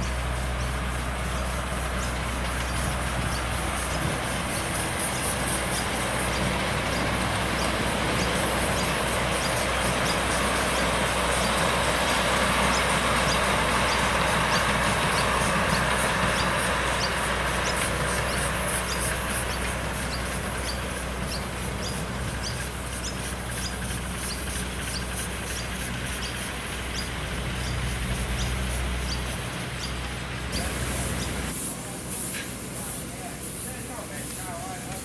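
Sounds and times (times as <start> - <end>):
model steam locomotive hissing: 0.0 - 35.0.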